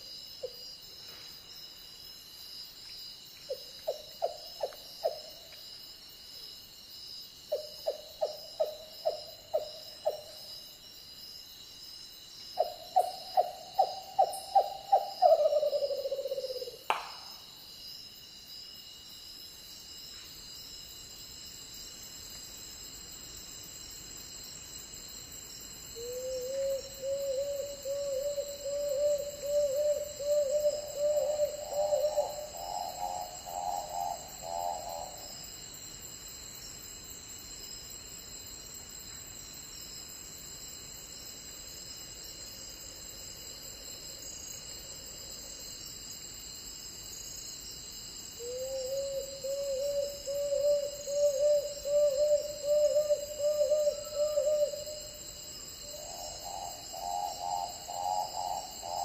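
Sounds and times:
frogmouth hooting calls: 12.6 - 17.0, 26.0 - 35.2, 48.4 - 55.0.

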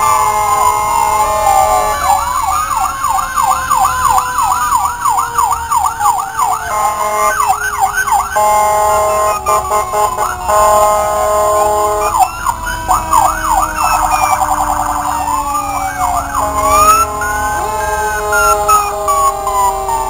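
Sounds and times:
electronic siren yelp: 0.0 - 20.0
falling siren tone: 0.0 - 20.0
steady siren tones: 0.0 - 20.0.

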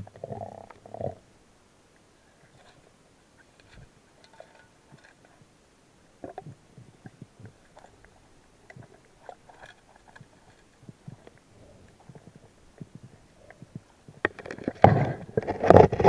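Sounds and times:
muffled underwater knocks and clicks: 3.6 - 5.6, 6.2 - 16.0.

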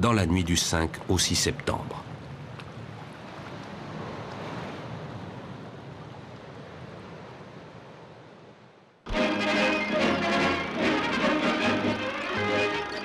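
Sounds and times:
sea surf washing on shore: 1.3 - 8.6.

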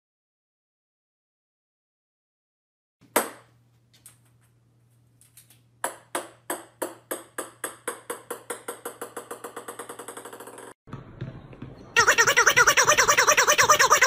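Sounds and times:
ping-pong ball bouncing on wood: 5.8 - 11.8.

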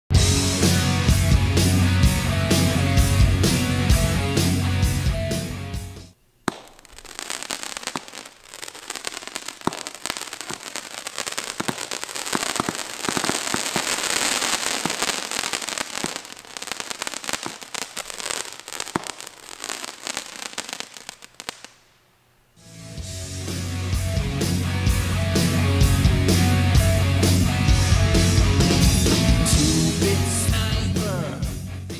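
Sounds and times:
firework crackle of small pops: 6.4 - 22.1
firework launch thump: 6.5 - 8.4, 9.4 - 10.8, 11.4 - 14.0.

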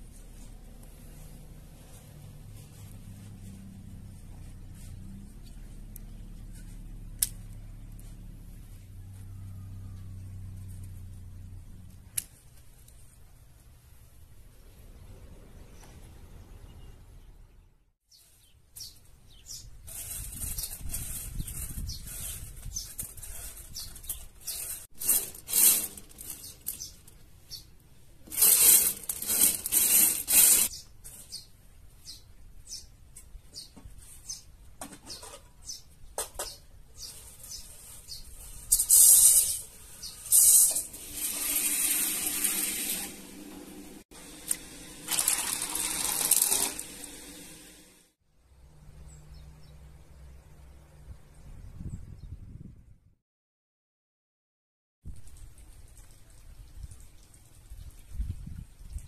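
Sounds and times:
water pouring: 40.3 - 47.9, 55.1 - 59.0
dried legumes rattling in a bowl: 45.1 - 47.2.

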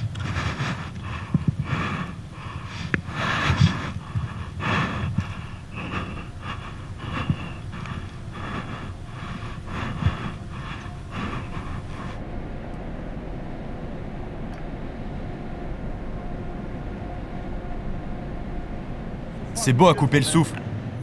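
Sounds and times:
heavy rhythmic breathing: 0.0 - 12.5.

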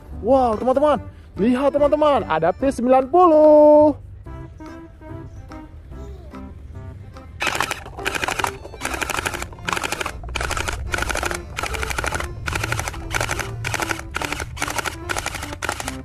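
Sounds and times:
toy blaster firing bursts: 7.4 - 16.0.

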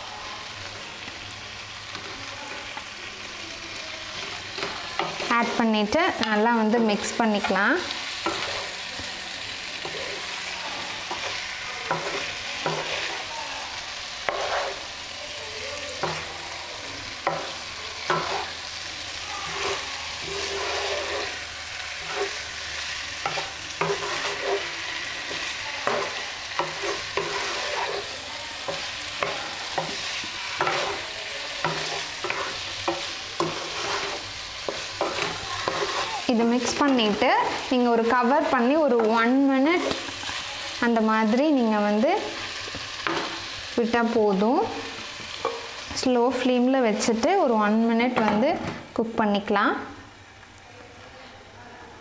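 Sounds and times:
food sizzling: 0.0 - 51.0
wooden spatula scraping a pan: 3.7 - 15.2, 15.8 - 40.7, 41.3 - 46.5.

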